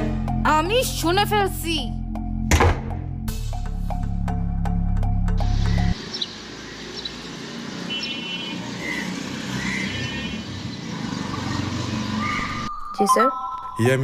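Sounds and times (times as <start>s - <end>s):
passing traffic hum: 5.4s - 12.7s.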